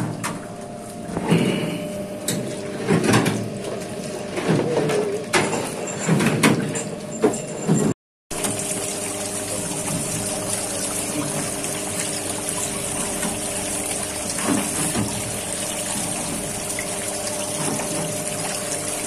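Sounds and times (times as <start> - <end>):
electric water pump hum: 0.0 - 19.0
water spraying and splashing: 8.3 - 19.0.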